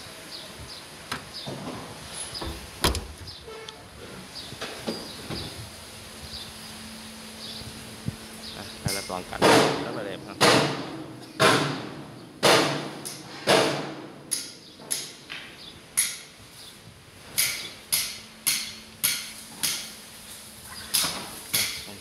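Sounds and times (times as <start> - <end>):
hammer blows: 8.9 - 15.1.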